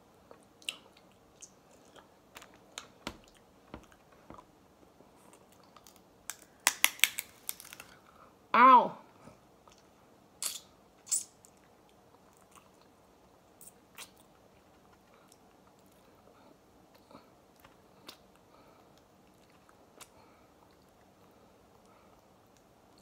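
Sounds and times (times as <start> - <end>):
quiet chewing: 0.2 - 6.0, 11.4 - 13.0, 13.6 - 23.0
crab shell cracking: 5.7 - 8.0.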